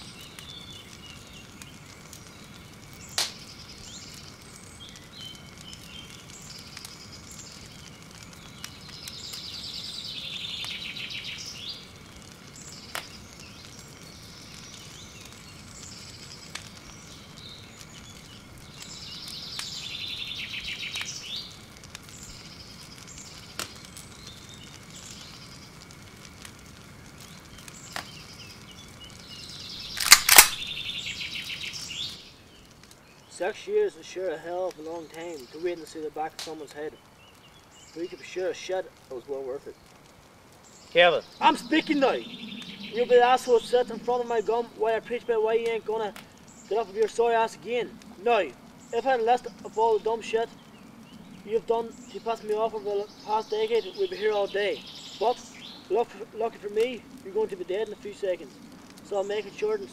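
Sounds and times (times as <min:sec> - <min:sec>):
birds trilling: 0:00.0 - 0:59.9
campfire cracks: 0:00.0 - 0:59.9.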